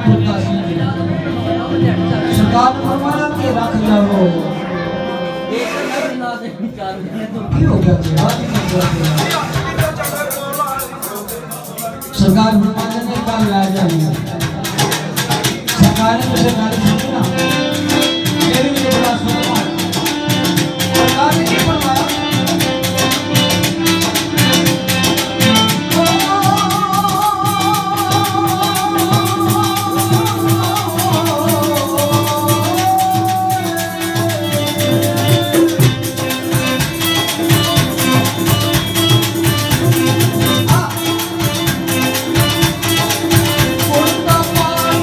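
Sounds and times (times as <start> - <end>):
percussion beat: 0.0 - 4.6, 7.5 - 45.0
man singing into microphone: 0.0 - 10.2, 12.2 - 22.8, 25.4 - 36.2, 43.5 - 45.0
amplified instrumental accompaniment: 0.0 - 45.0.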